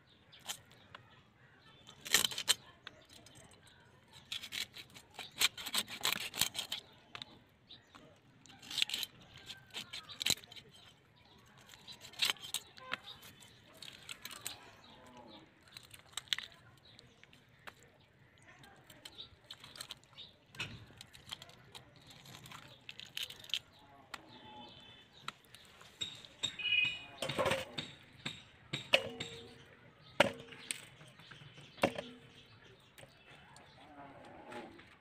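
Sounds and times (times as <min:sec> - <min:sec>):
knife cutting fish on leaf: 0:04.1 - 0:07.2, 0:11.6 - 0:14.5.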